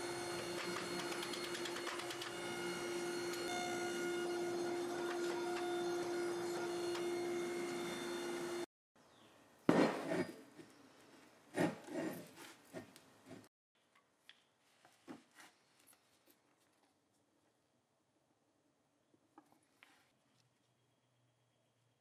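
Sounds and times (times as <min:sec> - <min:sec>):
hydraulic press humming: 0:00.0 - 0:08.6.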